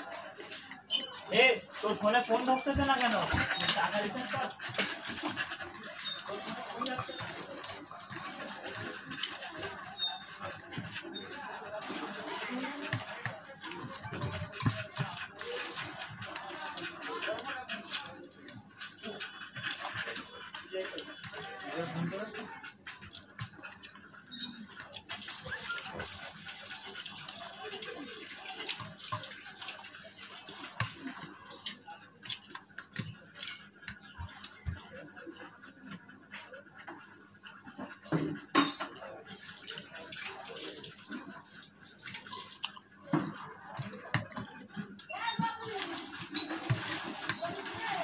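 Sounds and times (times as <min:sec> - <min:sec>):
wet chewing: 0:01.8 - 0:40.0, 0:41.1 - 0:48.0
fingers mixing rice on steel plate: 0:30.4 - 0:35.5.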